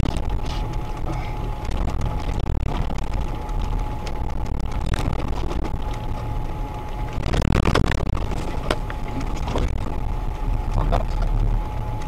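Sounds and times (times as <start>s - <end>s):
engine and drivetrain rumble: 0.0s - 12.0s
rush of noise: 0.0s - 12.0s
knocks and rattles: 7.1s - 10.0s.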